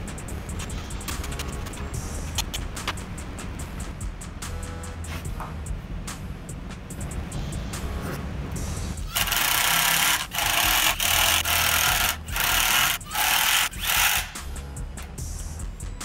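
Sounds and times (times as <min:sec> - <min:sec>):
background music: 0:00.0 - 0:16.0
impact driver hammering screw: 0:09.1 - 0:14.4.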